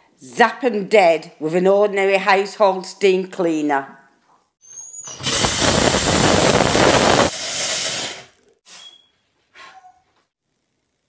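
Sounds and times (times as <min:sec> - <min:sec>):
steam cleaner hissing: 0:05.2 - 0:08.8.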